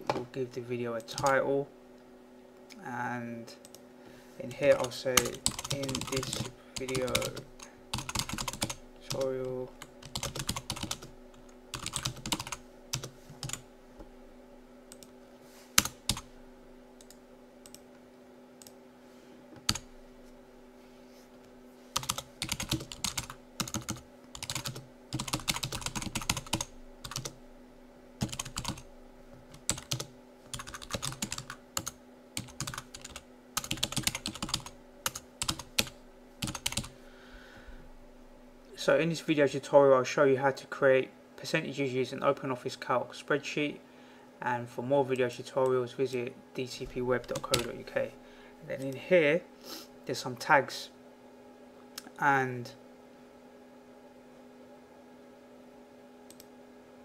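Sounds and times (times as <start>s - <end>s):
faint steady hum: 0.0s - 57.0s
typing on computer keyboard: 4.8s - 9.3s, 10.0s - 11.1s, 11.8s - 13.6s, 22.0s - 27.4s, 28.2s - 28.8s, 29.6s - 36.9s.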